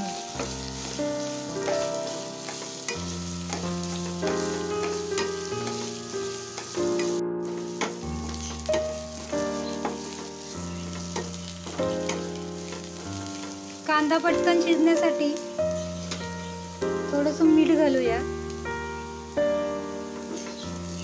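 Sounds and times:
background music: 0.0s - 21.0s
onions sizzling in hot oil: 0.0s - 21.0s
spatula scraping a pan: 0.4s - 8.9s.

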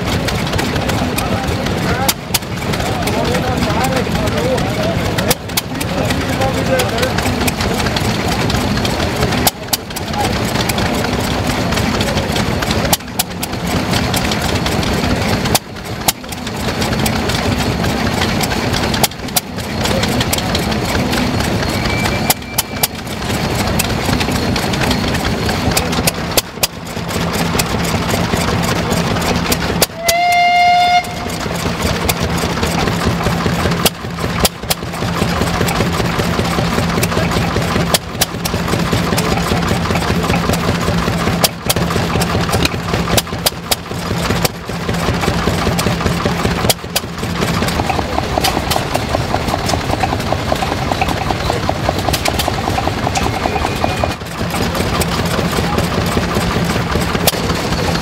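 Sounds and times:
stationary engine drone: 0.0s - 58.0s
sharp clicks: 31.0s - 58.0s.

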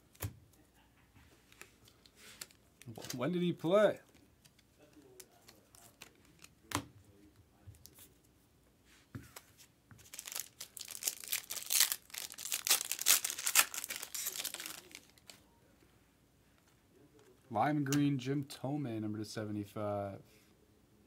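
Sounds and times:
foil wrapper crinkling: 10.0s - 15.4s.

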